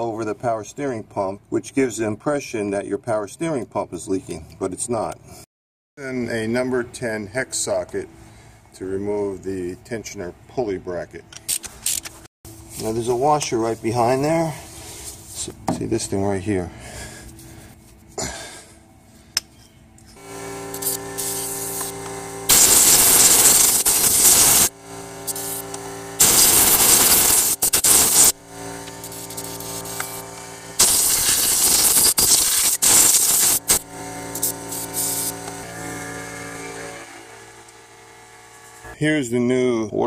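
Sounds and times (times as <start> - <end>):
impact driver whirring: 20.2 - 38.9.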